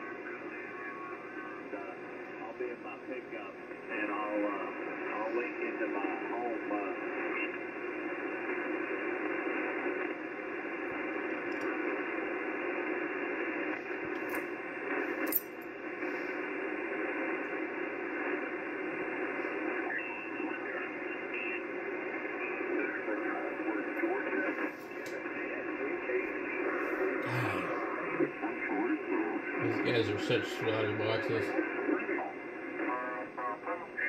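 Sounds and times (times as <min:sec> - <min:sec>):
radio static: 0:00.0 - 0:34.0
radio clicks: 0:04.6 - 0:27.2.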